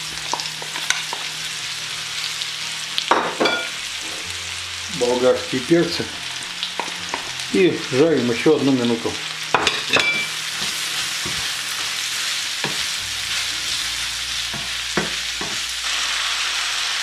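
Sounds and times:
vegetables sizzling in frying pan: 0.0 - 17.0
wooden spatula knocking on pan: 9.6 - 11.5, 14.5 - 15.6.

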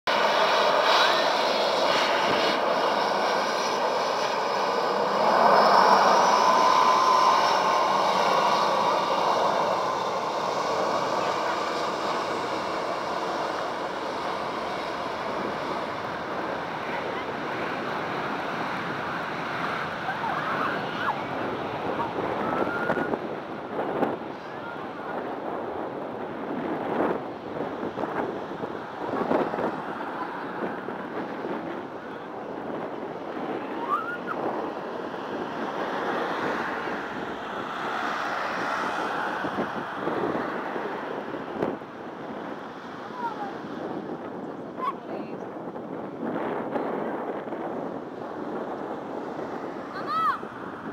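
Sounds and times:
jet engines at takeoff power: 0.1 - 50.9
wind gusts on microphone: 0.1 - 50.9.

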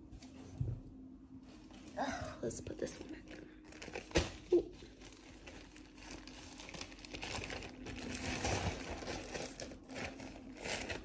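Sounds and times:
packaging crinkling and rustling: 2.6 - 11.0.

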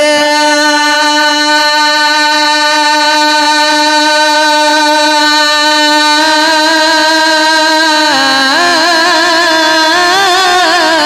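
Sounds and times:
man singing a long note: 0.0 - 11.0.

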